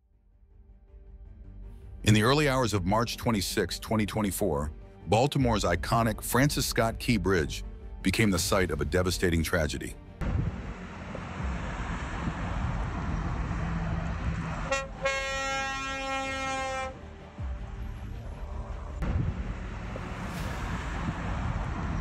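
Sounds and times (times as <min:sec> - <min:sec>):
low rumble: 0:10.1 - 0:15.2, 0:17.0 - 0:22.0
horn blast: 0:14.1 - 0:17.5.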